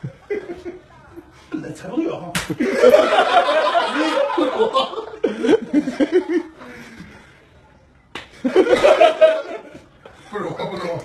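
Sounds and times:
sharp smack: 0:02.3 - 0:02.6
men laughing: 0:02.6 - 0:06.7, 0:08.4 - 0:11.0.

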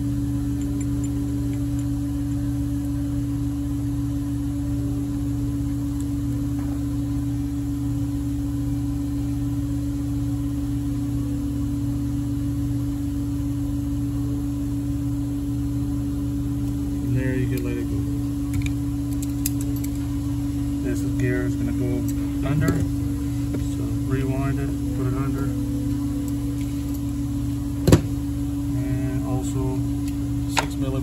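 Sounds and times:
steady droning hum: 0:00.0 - 0:31.0
low rumble: 0:19.7 - 0:30.6.

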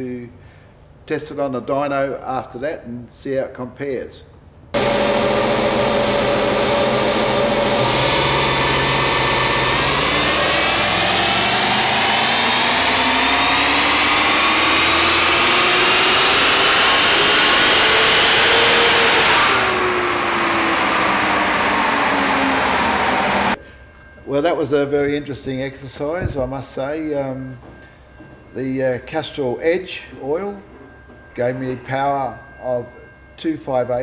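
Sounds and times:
car engine revving at full throttle: 0:04.8 - 0:23.6
tyre driving dynamometer roller: 0:04.8 - 0:23.6.

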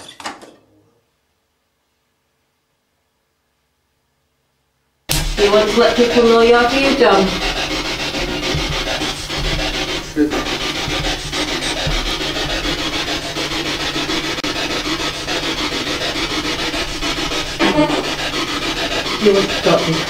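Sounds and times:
radio static sweeping stations: 0:05.1 - 0:20.0.

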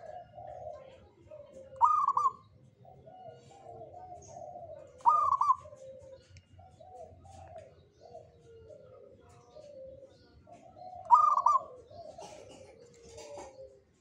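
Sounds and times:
dove cooing: 0:00.0 - 0:14.0
loud high-pitched bird call: 0:01.8 - 0:02.5, 0:05.0 - 0:05.7, 0:11.1 - 0:11.8.

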